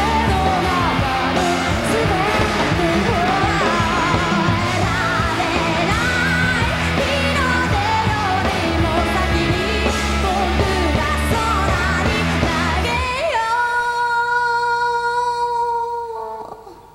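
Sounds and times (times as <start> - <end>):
rock band playing: 0.0 - 13.3
woman singing: 0.0 - 16.9.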